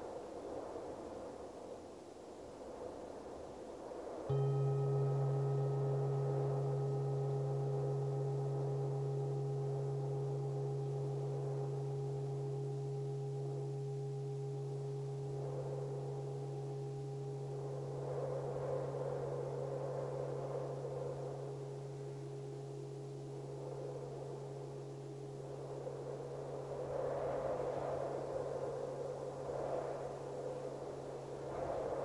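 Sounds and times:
soft wind: 0.0 - 32.0
singing bowl ringing: 4.3 - 32.0.

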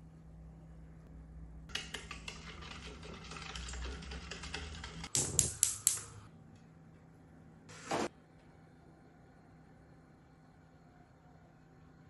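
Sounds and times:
spoon beating batter in bowl: 1.7 - 5.1.

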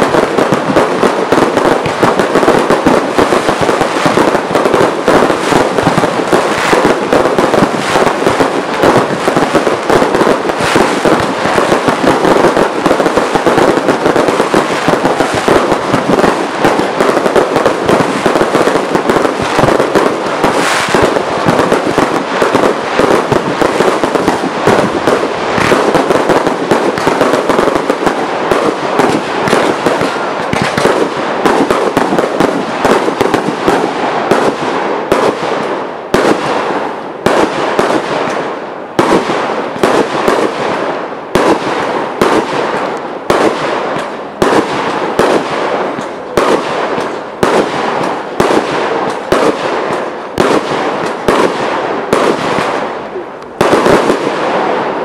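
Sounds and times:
fireworks bursting and crackling: 0.0 - 55.0
loud firework bangs: 0.0 - 55.0.

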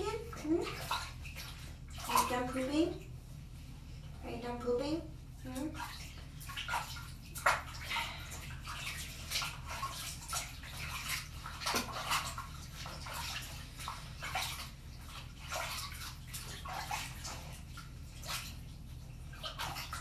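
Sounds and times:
water splashing in plastic basin: 0.0 - 3.2, 5.4 - 20.0
low steady hum: 0.0 - 20.0.

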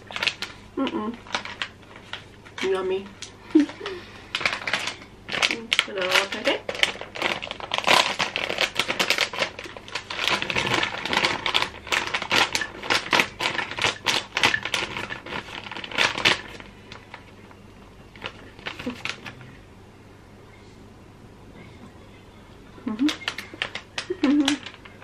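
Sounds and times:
gummy sweets rattling into container: 3.5 - 16.6, 23.1 - 25.0.

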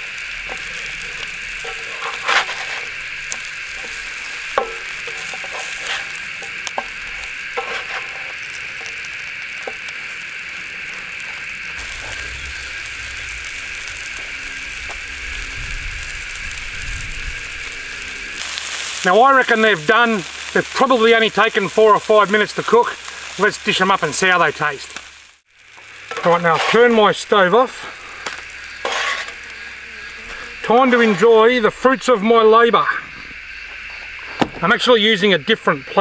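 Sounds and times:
fish fillets sizzling in a pan: 0.0 - 30.7
spatula scraping a pan: 0.4 - 9.8, 26.1 - 27.1, 27.8 - 31.4.

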